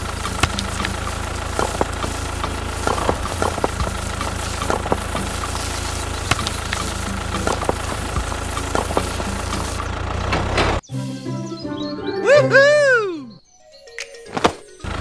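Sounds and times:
tractor engine idling: 0.0 - 10.8, 14.6 - 15.0.

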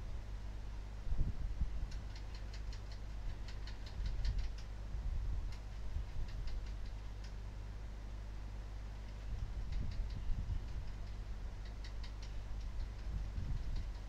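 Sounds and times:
steady low hum: 0.0 - 14.0
light sharp clicks: 1.9 - 4.7, 5.5 - 7.4, 9.0 - 14.0.

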